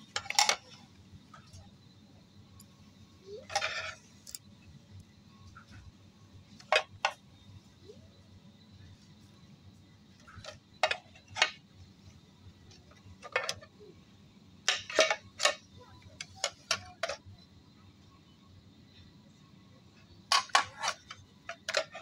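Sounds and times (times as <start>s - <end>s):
pans clacking against metal: 0.1s - 0.8s, 14.7s - 15.6s, 16.2s - 17.2s, 20.3s - 22.0s.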